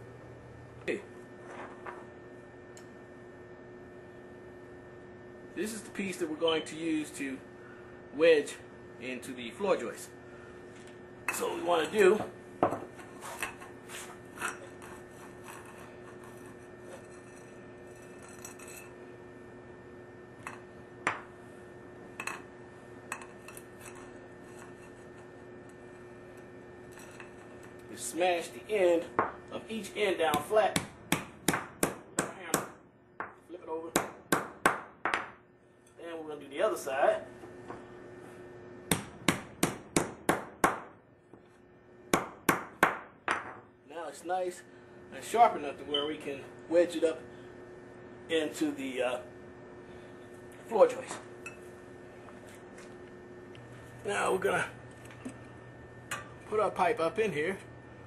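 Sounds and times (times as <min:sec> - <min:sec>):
hammer striking copper pipe: 0:30.3 - 0:33.4, 0:38.9 - 0:40.9.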